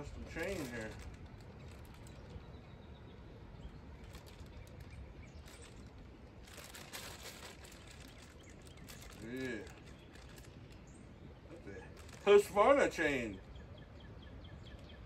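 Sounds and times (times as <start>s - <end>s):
low outdoor background hum: 0.0s - 15.0s
packaging rustling: 0.3s - 2.4s, 4.0s - 10.8s, 11.9s - 12.4s.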